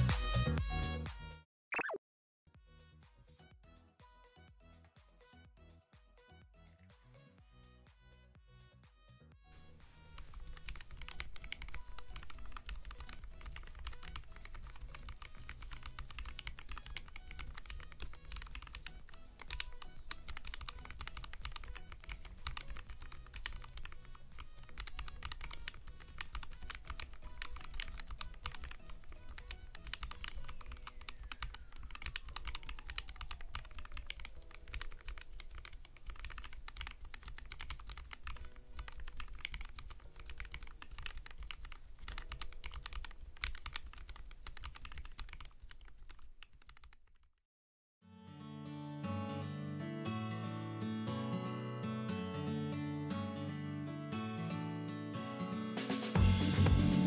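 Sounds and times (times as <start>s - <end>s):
quiet background music: 2.6s - 44.5s
mechanical keyboard typing: 10.0s - 47.3s.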